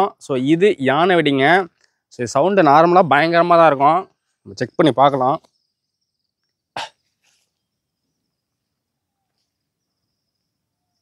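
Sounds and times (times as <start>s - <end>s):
high-pitched insect drone: 7.4s - 11.0s.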